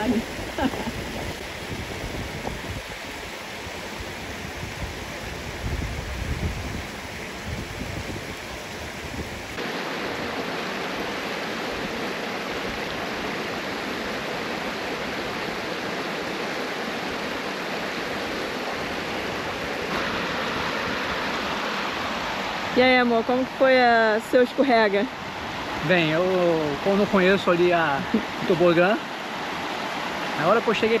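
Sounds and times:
river rushing over rocks: 0.0 - 31.0.

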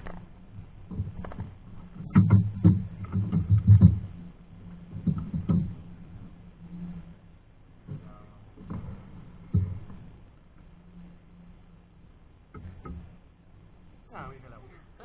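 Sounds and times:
knocks and rattling clicks in boat: 0.8 - 4.2, 4.8 - 5.8, 7.8 - 10.1.

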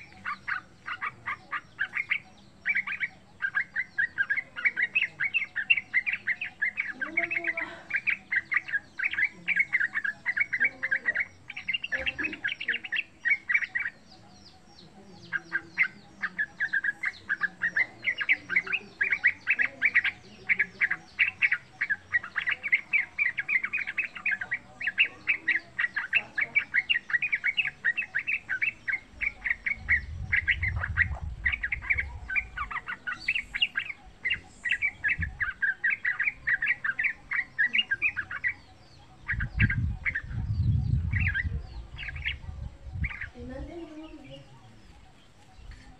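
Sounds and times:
bird chattering song: 0.0 - 45.9.

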